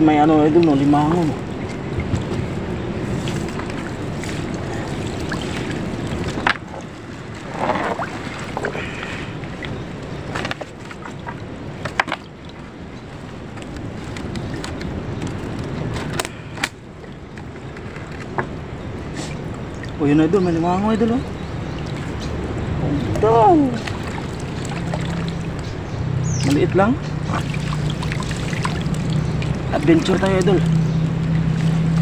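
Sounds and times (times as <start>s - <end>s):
water splashing and dripping: 0.0s - 32.0s
wet net hauled from water: 0.6s - 20.0s, 21.3s - 32.0s.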